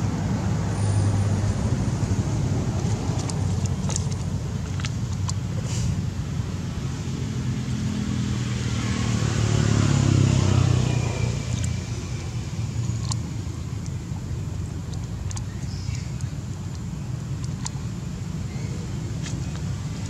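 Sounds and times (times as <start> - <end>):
steady low rumble: 0.0 - 20.0
vehicle engine passing by: 6.7 - 13.2.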